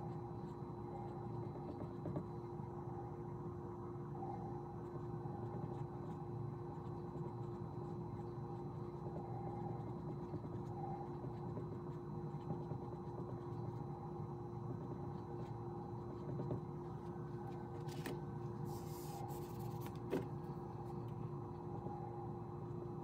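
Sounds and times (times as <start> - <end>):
faint steady tones: 0.0 - 23.0
low room hum: 0.0 - 23.0
marker rubbing on whiteboard: 18.7 - 20.0.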